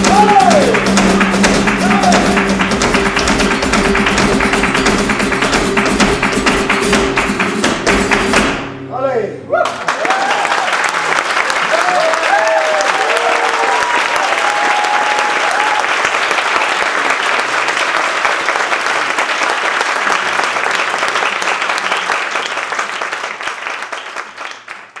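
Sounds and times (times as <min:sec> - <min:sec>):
people shouting: 0:00.0 - 0:00.8, 0:01.8 - 0:02.4
audience applauding: 0:00.0 - 0:08.5, 0:09.6 - 0:25.0.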